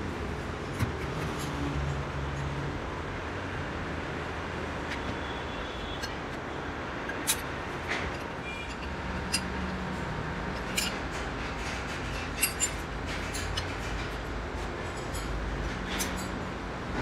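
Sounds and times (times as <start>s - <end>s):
metallic clinks and taps: 7.1s - 9.6s, 10.5s - 14.2s.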